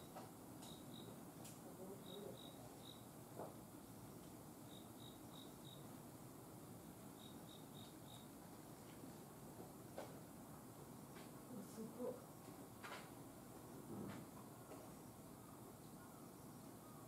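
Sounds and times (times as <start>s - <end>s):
insect chirping: 0.0s - 1.2s, 1.8s - 3.2s, 4.6s - 6.0s, 7.0s - 8.4s.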